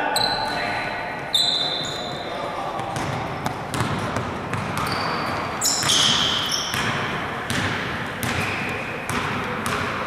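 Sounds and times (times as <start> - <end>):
gym hubbub: 0.0 - 10.0
sneakers squeaking: 0.0 - 10.0
basketball bouncing: 2.8 - 10.0.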